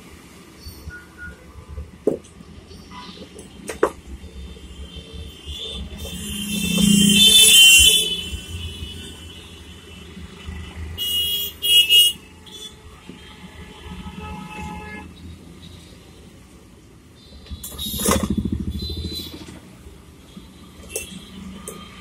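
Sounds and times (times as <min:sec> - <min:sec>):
car horn honks: 0:05.5 - 0:09.7, 0:11.0 - 0:12.8
vehicle passing by: 0:06.5 - 0:07.6.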